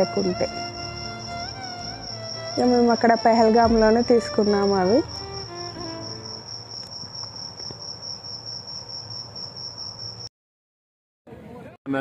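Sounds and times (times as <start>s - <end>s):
high-pitched insect trill: 0.0s - 10.3s.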